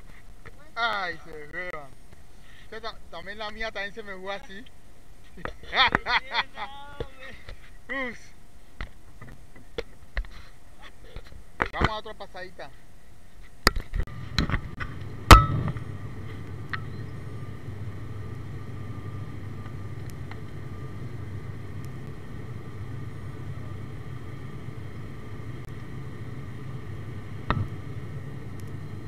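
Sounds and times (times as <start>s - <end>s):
turboprop cabin drone: 13.6s - 29.0s.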